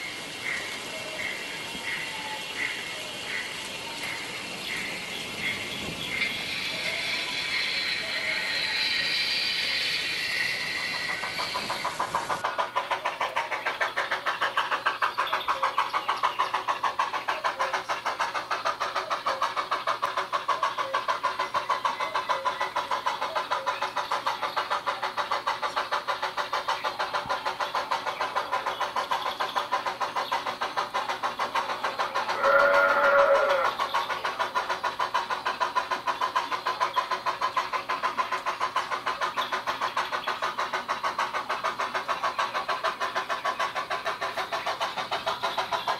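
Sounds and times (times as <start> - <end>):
model steam locomotive chuffing: 0.0 - 45.9
short train whistle: 32.4 - 33.7.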